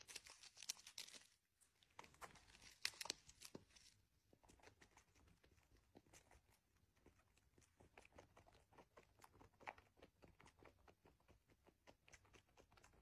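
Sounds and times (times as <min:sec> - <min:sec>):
kitten suckling on bottle: 0:04.3 - 0:13.0.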